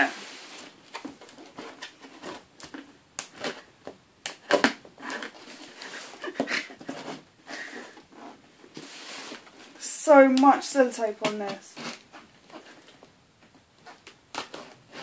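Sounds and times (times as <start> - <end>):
tape and cardboard tearing: 0.4 - 7.0, 11.2 - 13.0, 13.8 - 15.0.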